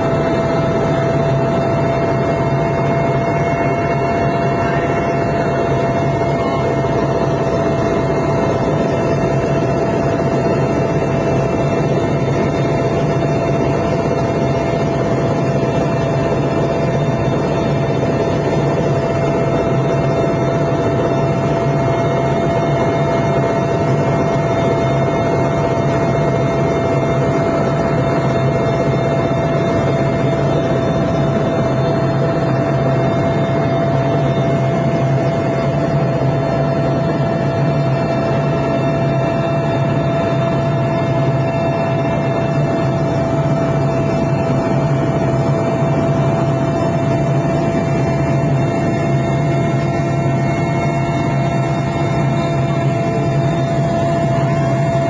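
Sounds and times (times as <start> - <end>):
helicopter turbine and rotor noise: 0.0 - 55.0.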